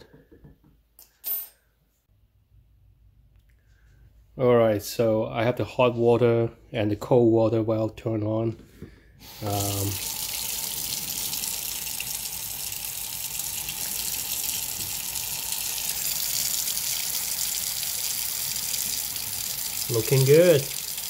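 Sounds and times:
water running into a steel sink: 9.2 - 21.0.

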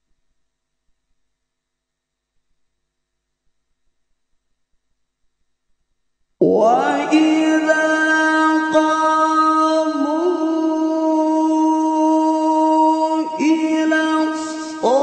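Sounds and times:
man chanting melodic recitation: 6.4 - 15.0.

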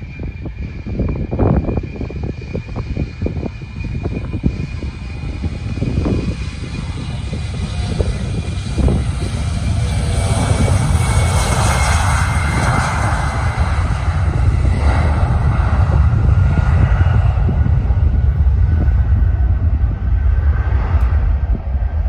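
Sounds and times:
jet engines rushing: 0.0 - 22.0
wind rumble on microphone: 0.0 - 22.0.

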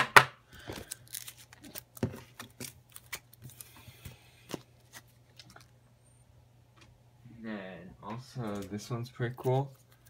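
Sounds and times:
plastic card sleeves rustling: 0.6 - 3.8.

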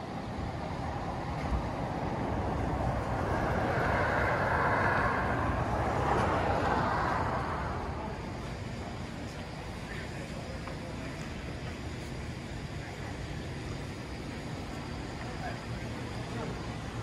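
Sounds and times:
low traffic rumble: 0.0 - 17.0
vehicle rushing past: 0.9 - 8.3.

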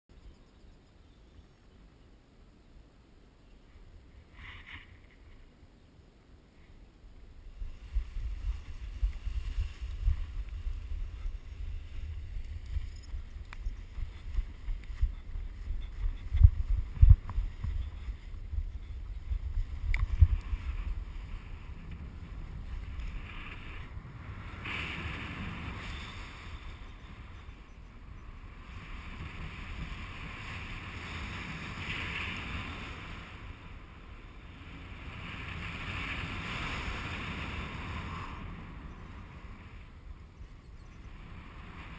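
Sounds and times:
wind buffeting microphone: 7.4 - 41.9.

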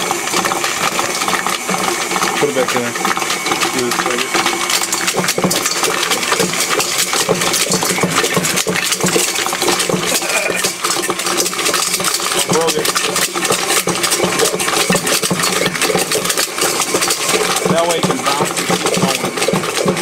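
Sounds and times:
hard plastic rattling in bowl: 0.0 - 20.0
stand mixer running: 0.0 - 20.0.

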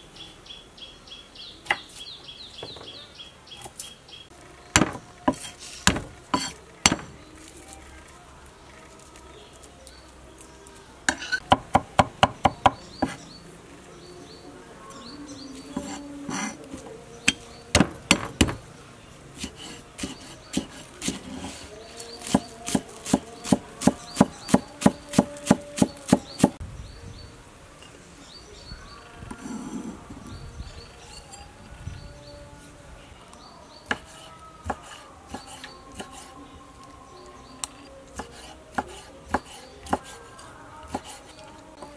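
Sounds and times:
knife chopping on wooden board: 4.8 - 7.2, 11.1 - 13.2, 17.3 - 18.6, 19.4 - 21.5, 22.2 - 26.6, 33.9 - 36.2, 38.2 - 40.2.

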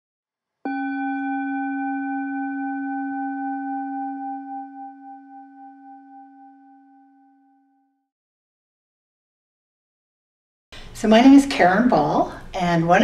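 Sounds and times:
singing bowl ringing: 0.7 - 8.1.

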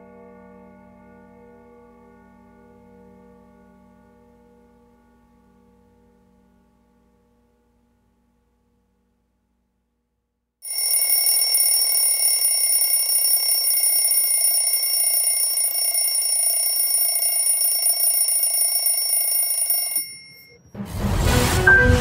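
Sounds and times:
bell ringing: 10.6 - 20.8.

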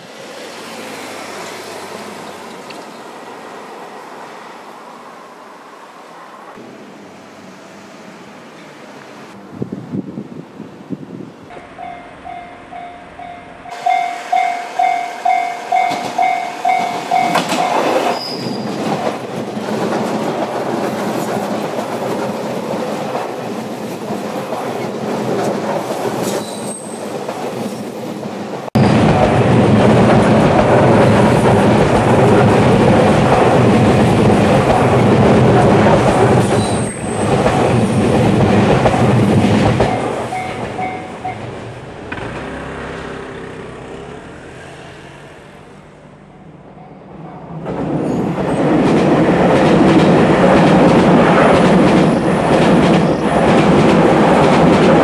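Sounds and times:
train passing with wheel clatter: 0.0 - 55.0
crossing warning bell ringing: 11.5 - 18.6, 39.8 - 41.7.

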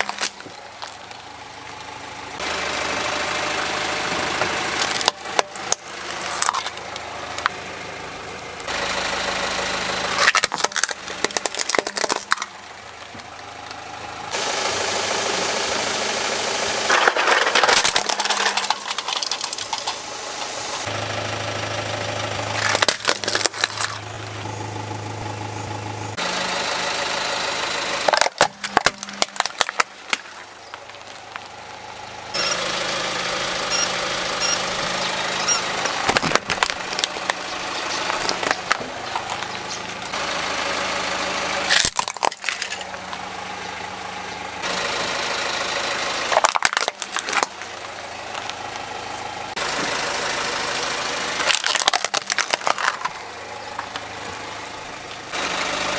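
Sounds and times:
plastic toys cracking under tyre: 0.0 - 1.2, 4.8 - 7.6, 10.2 - 13.8, 16.9 - 20.1, 22.5 - 24.1, 28.0 - 31.5, 35.7 - 40.2, 41.7 - 43.2, 46.3 - 48.6, 51.4 - 54.1
car engine idling: 0.0 - 55.9.

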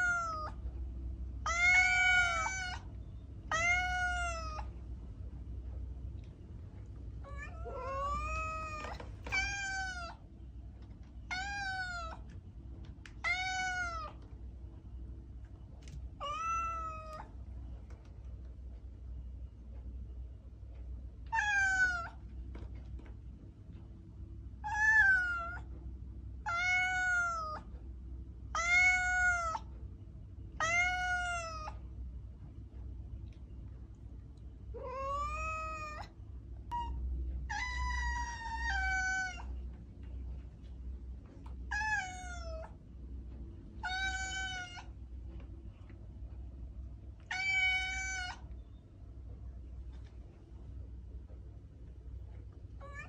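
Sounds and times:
cat meowing: 0.0 - 0.6, 1.4 - 4.8, 7.2 - 10.2, 11.2 - 12.3, 13.1 - 14.2, 16.2 - 17.3, 21.3 - 22.2, 24.6 - 25.7, 26.4 - 27.7, 28.5 - 29.7, 30.6 - 31.8, 34.7 - 36.1, 36.7 - 39.6, 41.6 - 42.8, 43.8 - 45.0, 47.2 - 48.5, 52.8 - 53.0.

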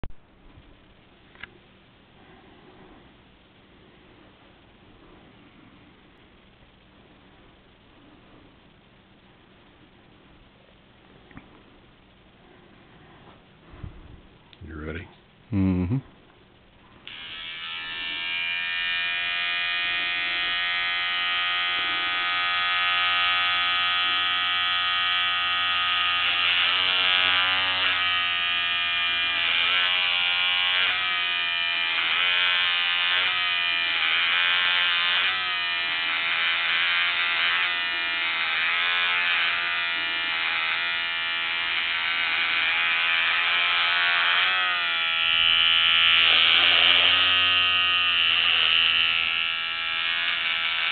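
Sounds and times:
electric shaver humming: 17.0 - 50.9.

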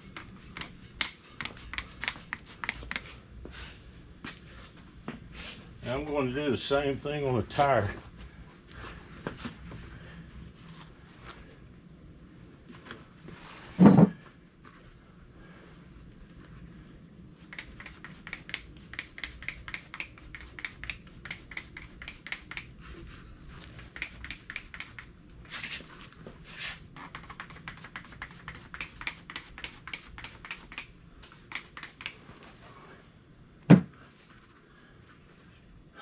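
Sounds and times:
spray bottle squirting: 1.4 - 3.1, 17.4 - 22.8, 23.7 - 25.1, 27.0 - 32.2.

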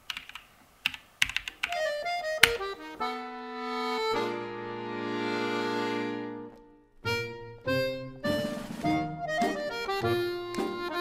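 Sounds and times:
keyboard keystrokes: 0.1 - 1.8
short music piece: 2.2 - 11.0.

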